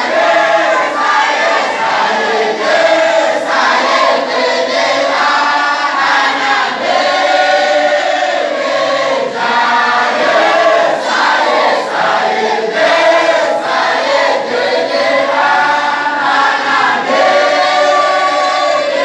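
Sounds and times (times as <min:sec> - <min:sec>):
men chanting together: 0:00.0 - 0:19.0.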